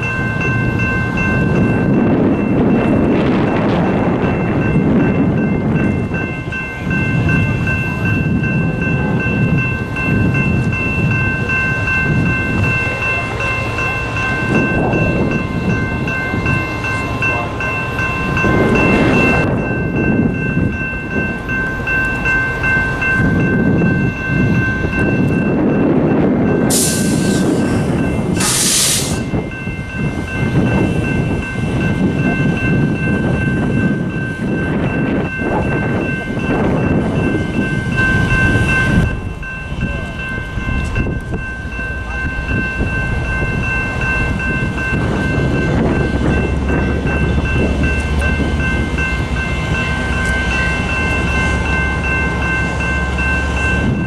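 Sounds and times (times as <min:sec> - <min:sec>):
diesel locomotive running: 0:00.0 - 0:54.0
short loud hisses: 0:28.4 - 0:29.2.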